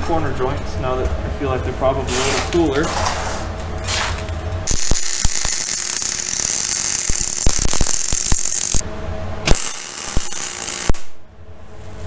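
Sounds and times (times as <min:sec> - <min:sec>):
welder arc crackling and hissing: 0:04.7 - 0:08.8, 0:09.5 - 0:11.2.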